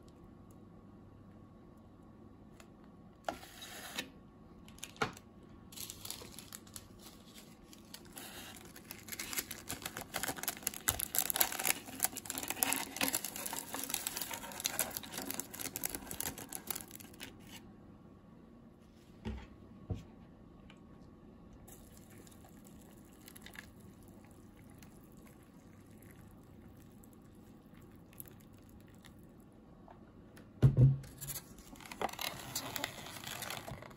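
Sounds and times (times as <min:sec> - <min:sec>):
plastic packet crinkling: 0:04.6 - 0:17.6, 0:31.2 - 0:33.9.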